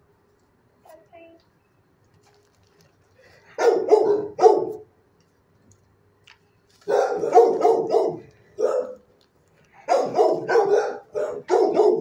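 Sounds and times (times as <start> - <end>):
dog barking: 3.6 - 4.9, 6.8 - 9.0, 9.8 - 12.0.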